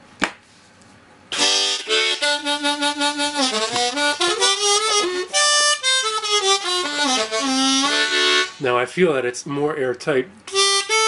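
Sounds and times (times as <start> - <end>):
harmonica playing: 1.3 - 8.9, 10.5 - 11.0.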